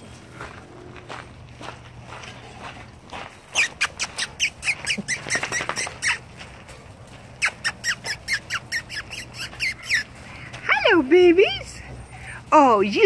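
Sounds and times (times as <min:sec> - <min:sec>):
lip kissing squeaks: 0:03.5 - 0:06.3, 0:07.4 - 0:10.2.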